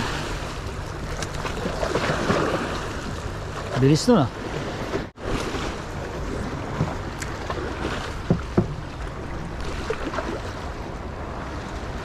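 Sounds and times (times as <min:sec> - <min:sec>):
water splashing against rocks: 0:00.0 - 0:05.9.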